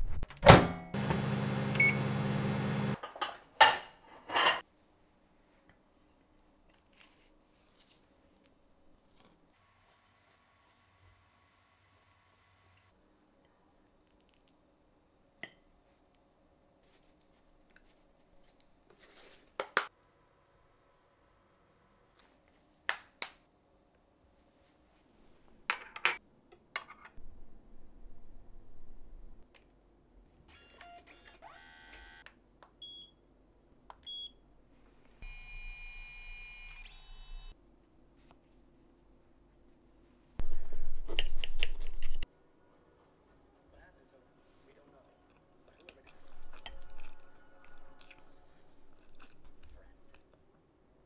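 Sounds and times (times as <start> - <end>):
soft rustle: 5.3 - 12.4, 16.8 - 19.6.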